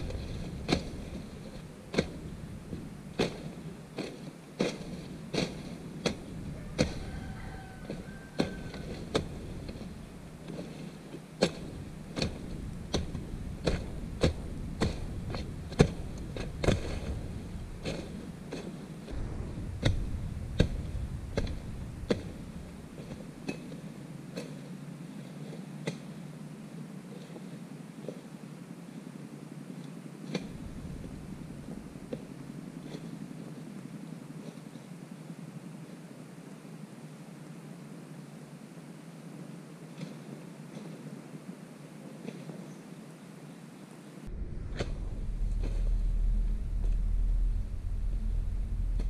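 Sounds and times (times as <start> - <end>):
machete chopping brush: 0.0 - 24.7, 30.3 - 33.1.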